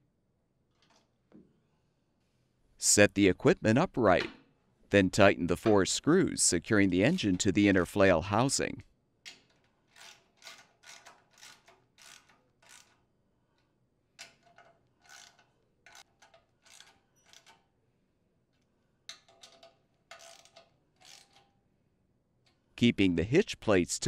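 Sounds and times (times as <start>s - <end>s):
socket ratchet clicking: 19.1s - 21.6s.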